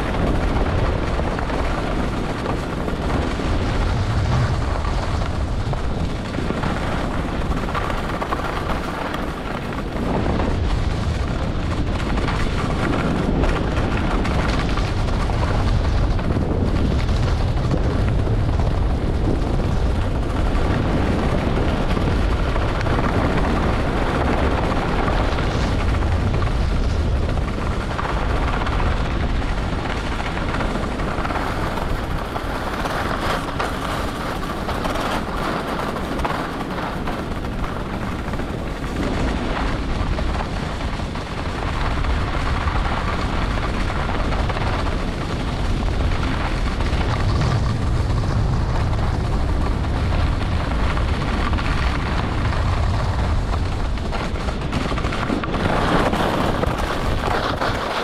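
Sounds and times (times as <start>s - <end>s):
wind rushing over microphone: 0.0s - 58.0s
ski edges scraping on snow: 55.7s - 58.0s.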